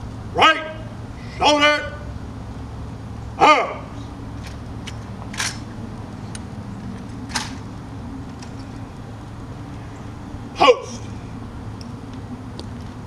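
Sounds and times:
person shouting command: 0.3s - 2.1s, 3.4s - 4.0s, 10.6s - 11.1s
rifles slapping and clicking: 4.4s - 7.7s.

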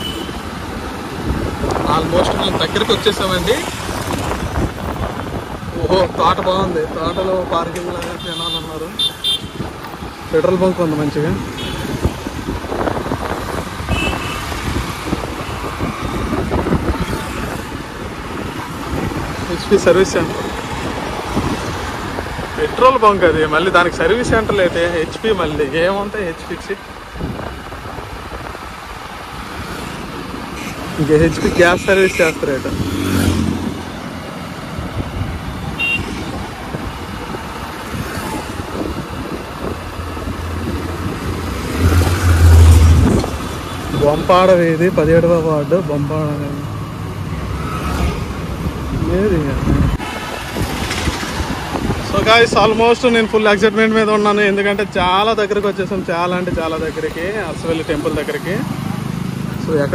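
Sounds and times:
motorcycle engine and road rumble: 0.0s - 59.9s
road traffic: 0.0s - 59.9s
wind buffeting microphone: 0.5s - 6.9s, 11.8s - 19.6s, 34.5s - 43.8s, 47.4s - 52.9s.

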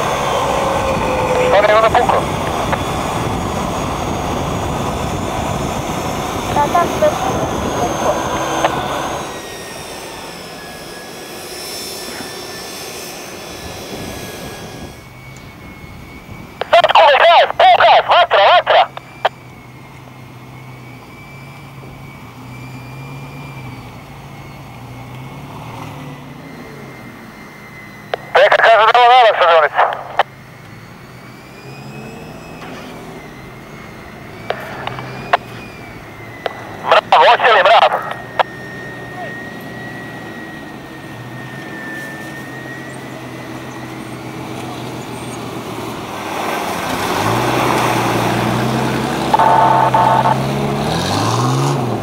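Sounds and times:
winch whining under load: 0.0s - 16.7s, 18.8s - 28.6s, 29.9s - 52.0s
off-road engines running low: 0.0s - 52.0s
sharp clicks: 34.4s - 35.5s.

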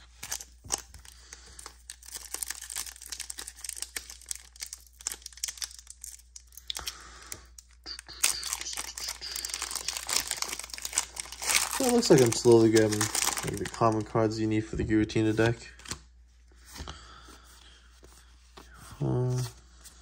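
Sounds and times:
foil wrapper tearing and crackling: 0.1s - 6.9s, 8.2s - 14.1s.

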